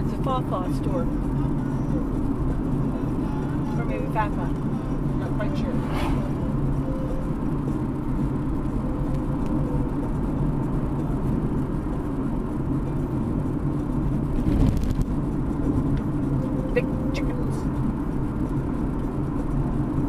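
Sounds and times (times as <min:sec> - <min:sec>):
car road and engine rumble: 0:00.0 - 0:20.0
brief rush: 0:05.5 - 0:07.4.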